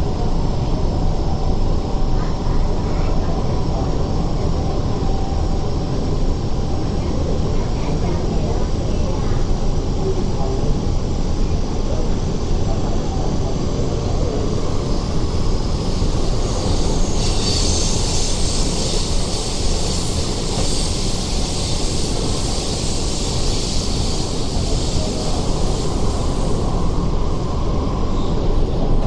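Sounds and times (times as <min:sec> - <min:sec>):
train wheels rumbling on rail: 0:00.0 - 0:29.0
high hiss: 0:14.6 - 0:28.4.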